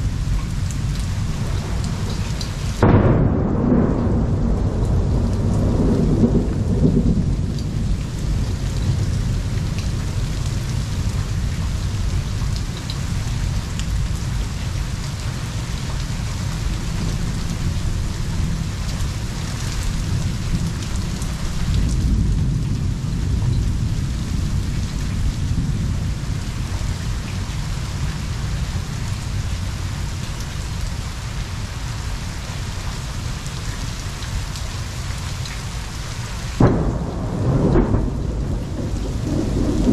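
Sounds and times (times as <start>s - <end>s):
rolling thunder: 0.0s - 14.5s, 16.3s - 29.4s, 36.6s - 39.9s
heavy rain falling: 0.0s - 39.9s.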